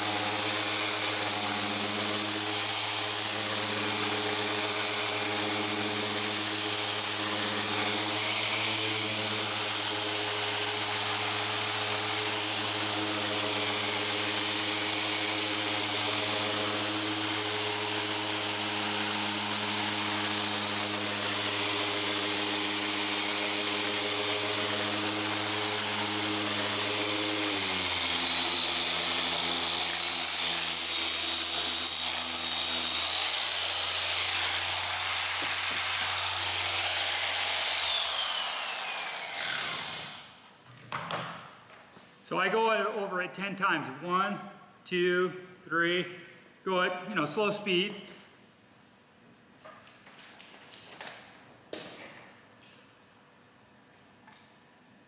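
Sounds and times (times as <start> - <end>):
orbital sander humming and whining: 0.0 - 40.3.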